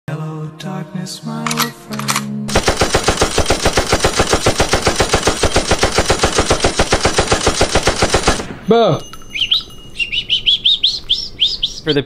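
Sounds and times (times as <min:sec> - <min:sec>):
rapid rattle of strikes: 0:02.5 - 0:09.8.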